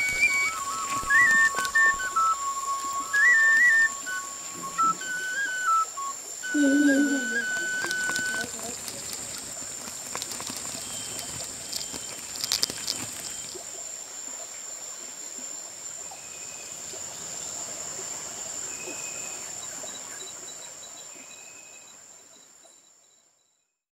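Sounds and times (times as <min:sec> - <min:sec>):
short high calls: 0:00.0 - 0:09.4
insects buzzing: 0:00.0 - 0:22.6.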